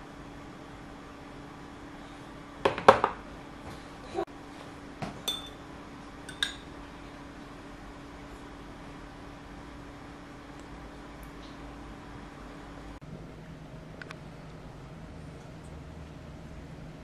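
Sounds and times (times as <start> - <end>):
glass jars clinking together: 5.3 - 5.6.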